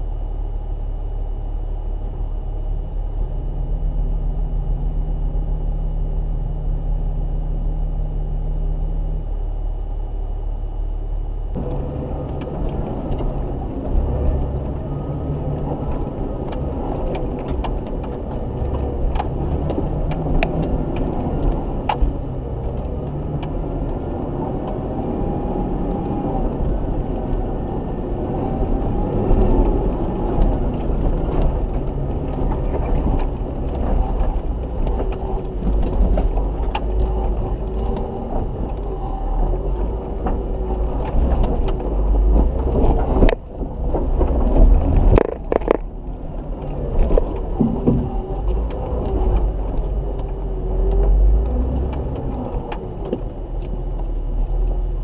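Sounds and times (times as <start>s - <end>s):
off-road vehicle engine at low revs: 0.0s - 55.0s
stones knocking against vehicle: 44.0s - 45.9s, 47.0s - 48.7s.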